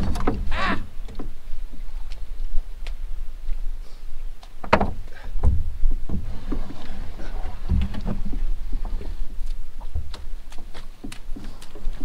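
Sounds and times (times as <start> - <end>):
canoe scraping over mud and grass: 5.6 - 12.0.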